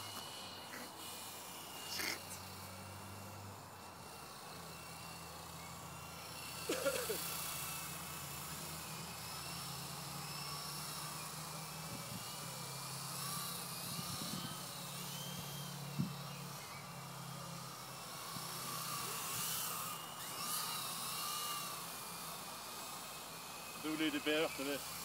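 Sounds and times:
model helicopter motor whining: 0.0s - 25.0s.

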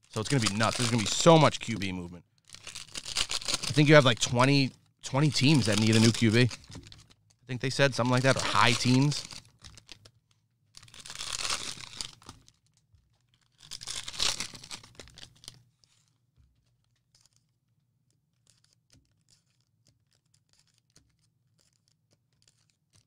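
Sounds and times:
card pack wrappers ripping: 0.1s - 10.0s, 10.8s - 12.5s, 13.4s - 15.6s
faint clicks and rustles: 4.7s - 23.0s.

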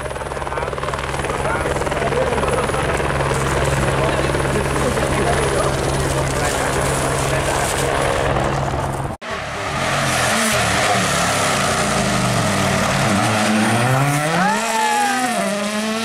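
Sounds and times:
helicopter drone: 0.0s - 16.0s
rally car engine accelerating: 9.2s - 16.0s.

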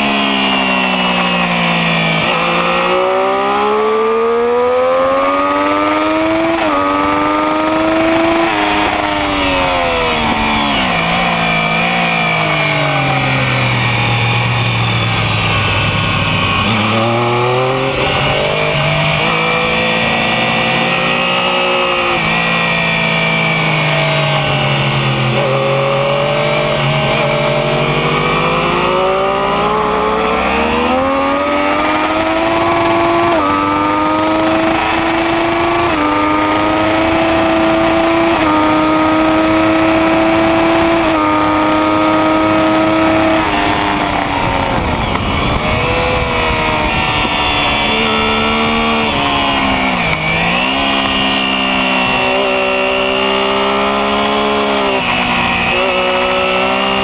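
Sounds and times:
motorcycle engine revving: 0.0s - 57.0s
wind rush: 43.4s - 52.4s.

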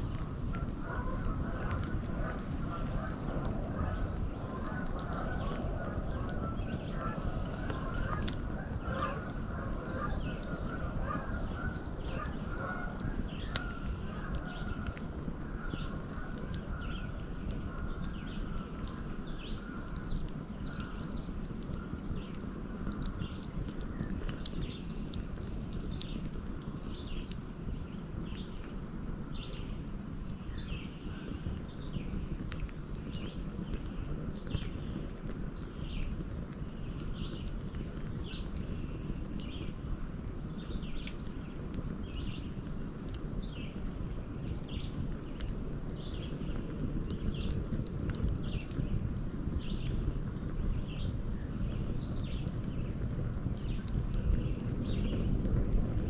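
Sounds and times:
wood fire crackling: 0.0s - 56.0s
birds calling: 0.5s - 26.3s.

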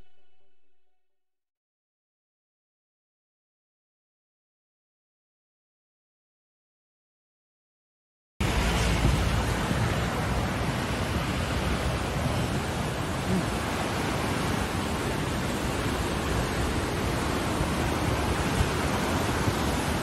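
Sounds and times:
river rushing: 8.4s - 20.0s.

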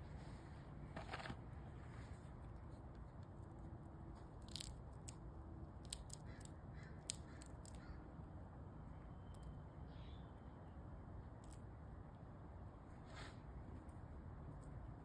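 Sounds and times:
squirrel gnawing food: 2.6s - 7.9s.

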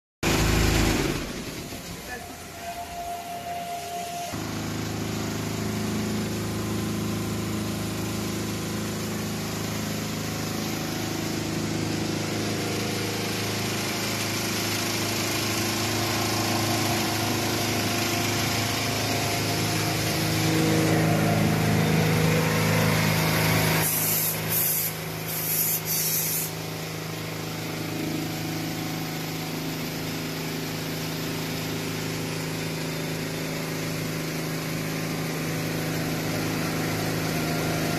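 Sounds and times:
machine motors humming: 0.3s - 25.6s
brief high hisses: 23.8s - 26.6s.

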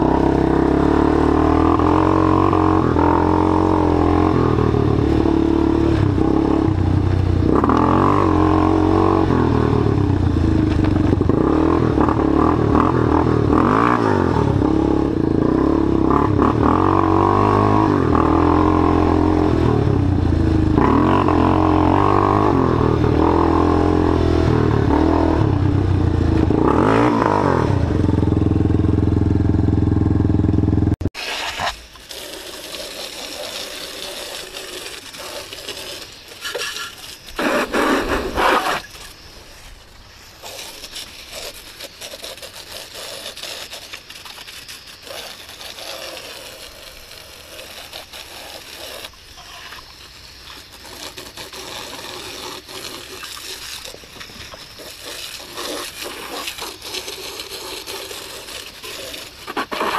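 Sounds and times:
engine revving: 0.0s - 31.1s.

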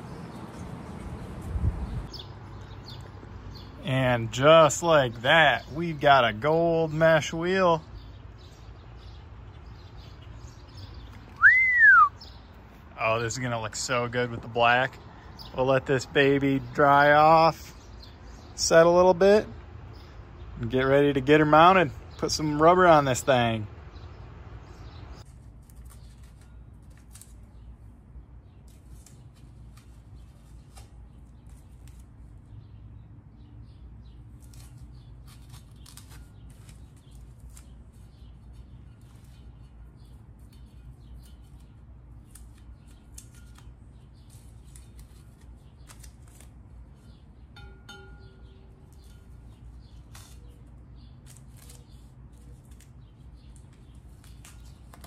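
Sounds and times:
hands handling tape: 25.2s - 27.9s, 28.6s - 32.5s, 34.2s - 47.3s, 48.5s - 55.0s.

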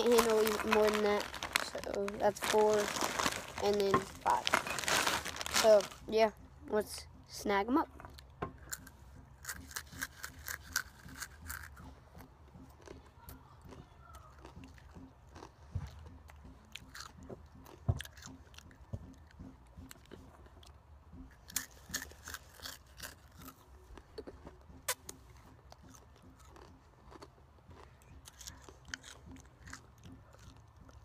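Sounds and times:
open-mouth chewing and smacking: 8.1s - 31.0s.

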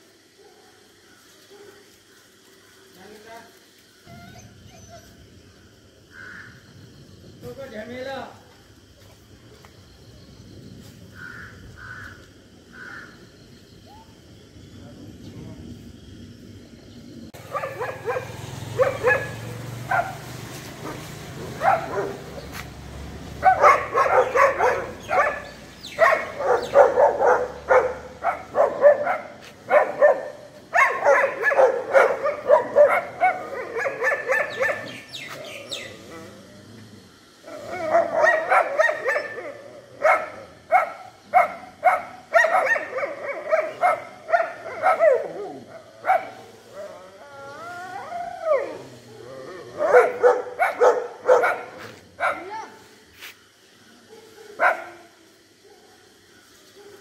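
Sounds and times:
dogs barking: 17.4s - 35.9s, 37.5s - 47.0s, 48.5s - 52.7s, 54.0s - 56.0s.

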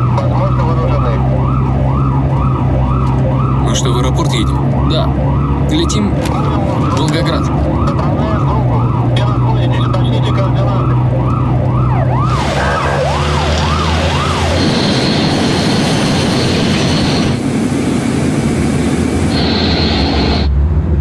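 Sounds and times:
vehicle siren wailing: 0.0s - 20.5s
steady high whine: 0.0s - 20.6s
loud even rushing noise: 12.2s - 21.0s.

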